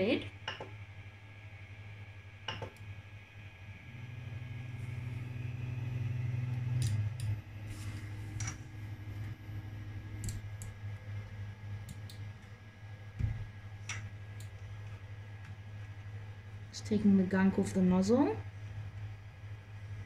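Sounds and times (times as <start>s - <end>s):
steady low hum: 0.0s - 20.0s
stepper motors humming: 0.0s - 20.0s
higher motor tone: 3.6s - 11.8s.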